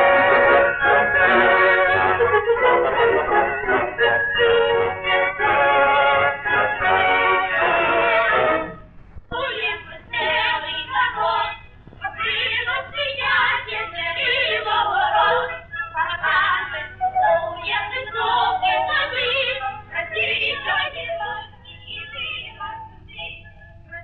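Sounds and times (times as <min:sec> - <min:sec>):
cartoon music with singing: 0:00.0 - 0:24.0
steady low hum: 0:00.0 - 0:24.0.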